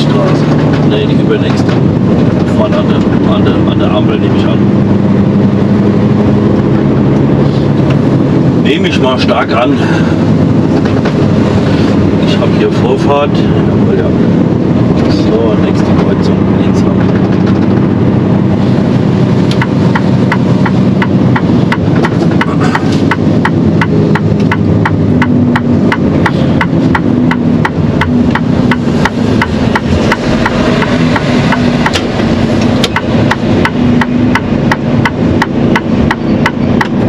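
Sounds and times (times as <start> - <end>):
truck engine running: 0.0 - 37.0
turn indicator ticking: 19.0 - 37.0.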